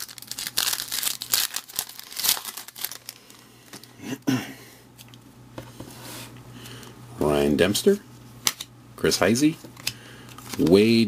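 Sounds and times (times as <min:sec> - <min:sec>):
foil wrapper crinkling and tearing: 0:00.0 - 0:03.9
cards rustling and clicking: 0:09.6 - 0:10.9.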